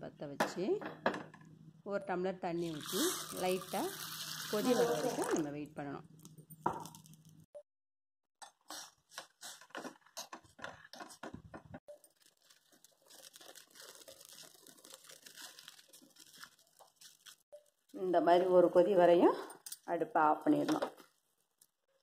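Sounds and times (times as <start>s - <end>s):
pot of water crackling on stove: 2.8s - 5.4s.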